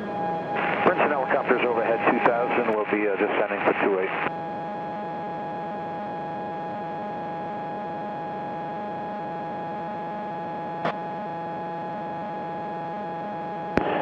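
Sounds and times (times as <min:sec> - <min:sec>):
aircraft engine and propeller drone: 0:04.3 - 0:13.9.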